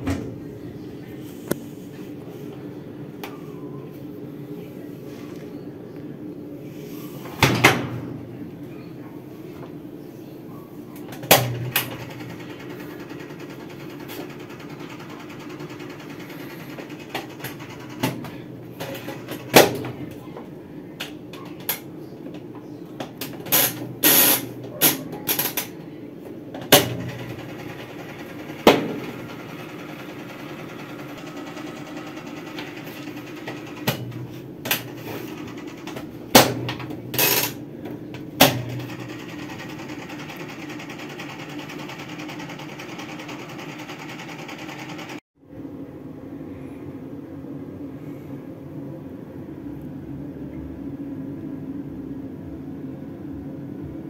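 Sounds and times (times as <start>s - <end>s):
washing machine motor humming: 0.0s - 4.9s, 10.7s - 45.2s.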